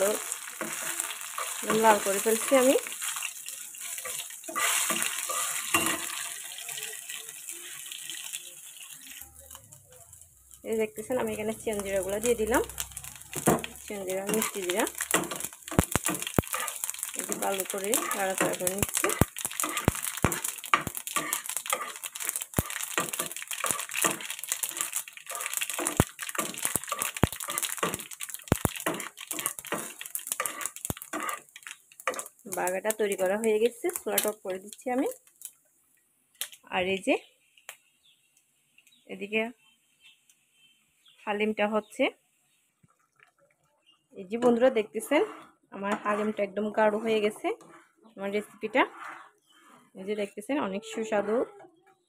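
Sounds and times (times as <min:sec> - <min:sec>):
spatula scraping pan: 0:00.0 - 0:07.9, 0:11.7 - 0:32.4, 0:44.4 - 0:51.6
garlic sizzling in hot oil: 0:00.0 - 0:35.6, 0:44.3 - 0:50.6.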